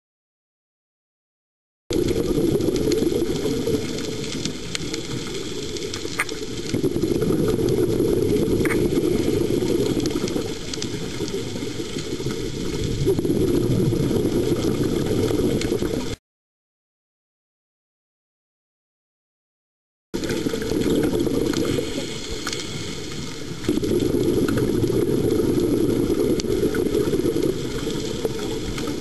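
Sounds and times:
faint crackling clicks: 0:01.9 - 0:16.2, 0:20.2 - 0:29.0
underwater regulator breathing bubbles: 0:06.1 - 0:10.7.

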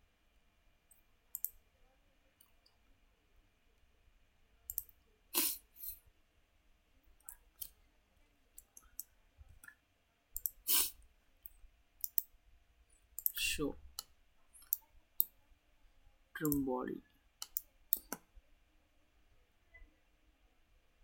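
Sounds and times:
computer mouse clicking: 0:00.9 - 0:01.6, 0:04.7 - 0:05.0, 0:10.4 - 0:10.6, 0:11.4 - 0:12.3, 0:13.2 - 0:13.4, 0:14.0 - 0:15.4, 0:16.4 - 0:16.6, 0:17.4 - 0:18.3.

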